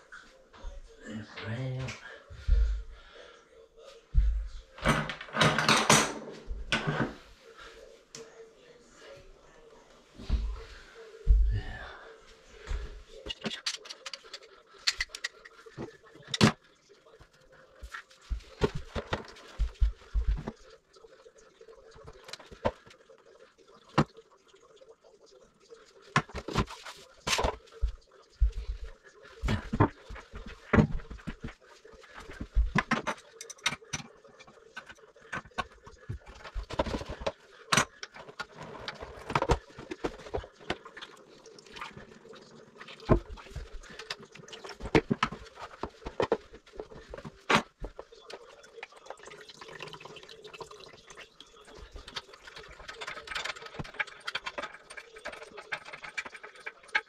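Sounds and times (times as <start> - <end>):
water splashing and dribbling: 12.4 - 57.0.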